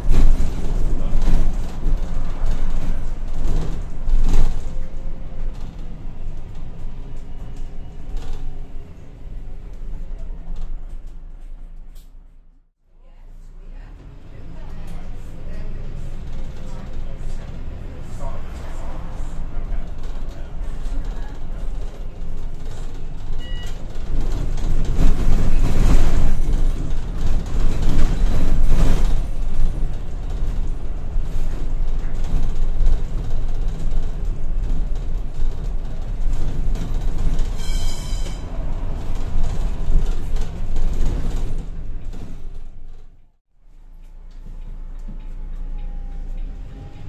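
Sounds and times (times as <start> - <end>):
bus engine and road rumble: 0.0 - 47.0.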